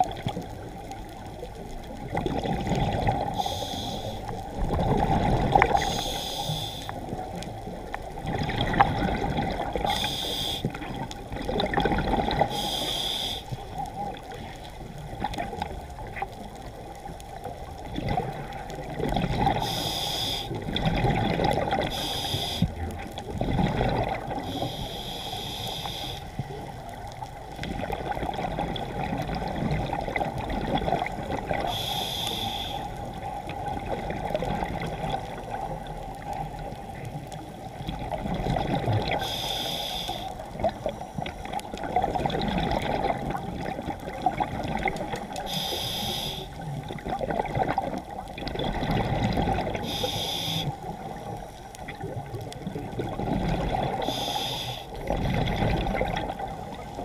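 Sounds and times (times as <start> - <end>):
exhaust bubbles gurgling: 0.0 - 12.6, 13.5 - 24.8, 26.4 - 31.9, 32.9 - 39.5, 40.4 - 45.6, 46.5 - 57.0
regulator inhale hiss: 3.2 - 4.5, 5.7 - 7.2, 9.8 - 10.8, 12.4 - 13.6, 19.6 - 20.6, 21.8 - 22.8, 24.4 - 26.6, 31.6 - 33.2, 39.1 - 41.6, 45.3 - 46.7, 49.8 - 51.7, 54.0 - 55.0.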